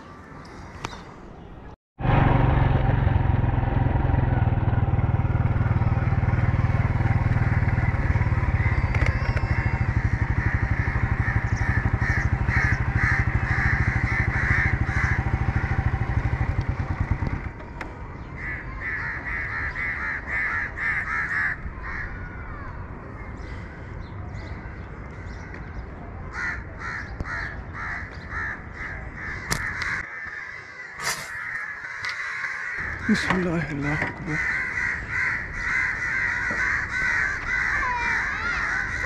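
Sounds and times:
small engine running: 0:02.0 - 0:18.0
crows cawing: 0:04.3 - 0:17.4, 0:18.2 - 0:39.0.

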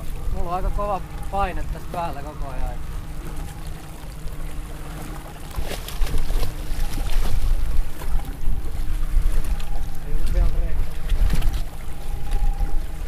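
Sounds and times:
water lapping at a boat: 0:00.0 - 0:13.0
wind rumbling on microphone: 0:00.0 - 0:13.0
sharp splashes: 0:04.9 - 0:08.1.

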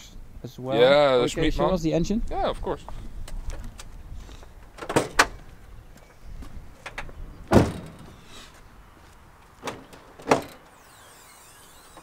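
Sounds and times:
car hood clunks: 0:06.9 - 0:08.2.

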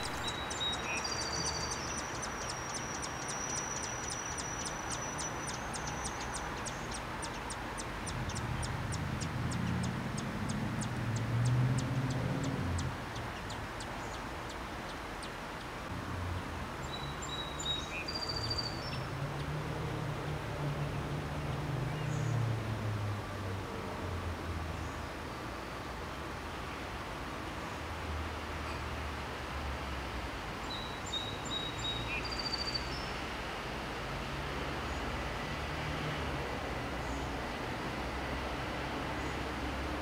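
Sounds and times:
high bird chirps: 0:00.0 - 0:08.7.

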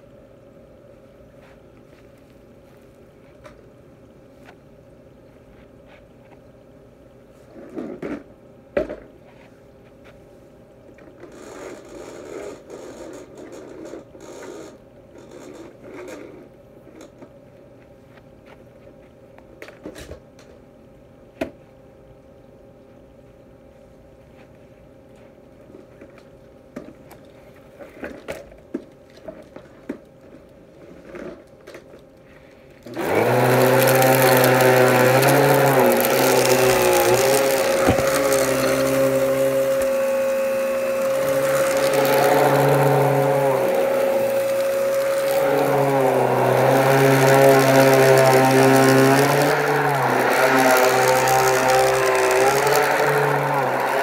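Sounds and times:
shoes shuffling on carpet: 0:01.3 - 0:03.7
scraping and brushing on carpet: 0:01.4 - 0:03.5
vacuum cleaner running: 0:32.8 - 0:54.0.

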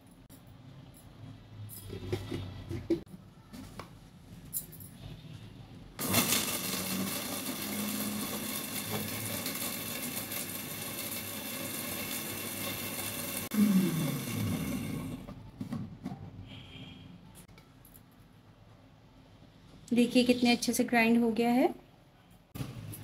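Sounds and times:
blender motor grinding spices: 0:06.0 - 0:15.3.

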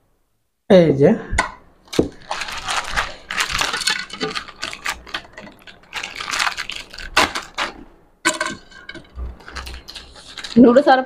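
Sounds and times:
plastic packet crinkling: 0:01.9 - 0:11.0.

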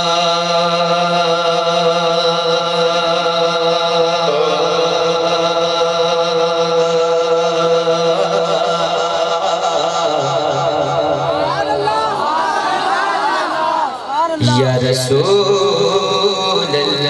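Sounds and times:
man chanting a long sung note: 0:00.0 - 0:11.7.

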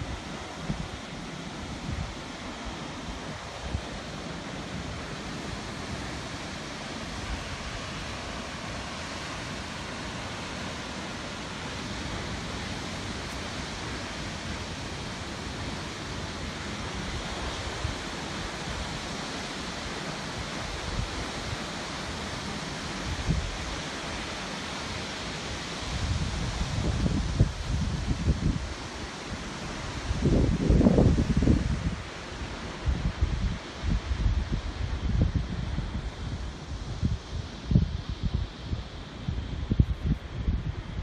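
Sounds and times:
rushing water roar: 0:00.0 - 0:41.0
wind buffeting microphone: 0:26.0 - 0:28.8, 0:29.9 - 0:32.2, 0:32.8 - 0:41.0.

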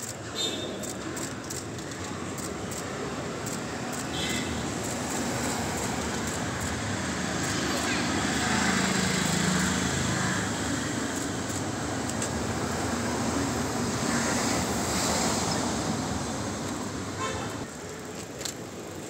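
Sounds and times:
passing vehicles: 0:00.0 - 0:19.0.

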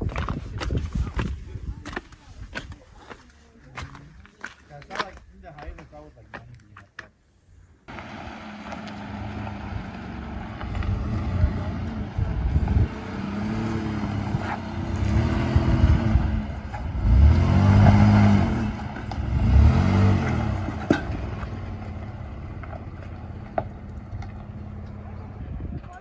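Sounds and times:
truck engine revving: 0:07.9 - 0:25.6.

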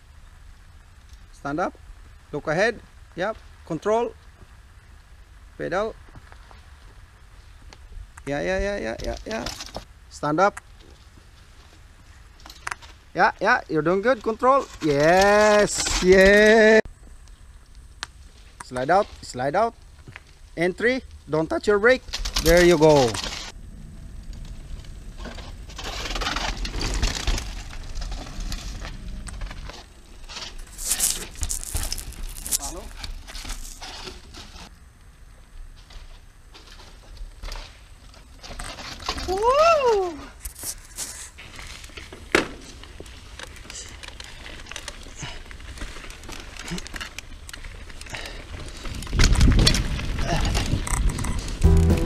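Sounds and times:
bike tyres crunching over dirt: 0:00.0 - 0:52.0
wind rumble on microphone: 0:22.4 - 0:30.7, 0:48.7 - 0:51.7.

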